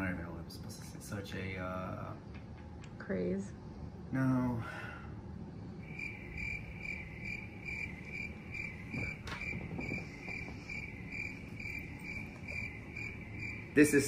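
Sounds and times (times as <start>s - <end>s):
cricket chirping: 5.7s - 14.0s.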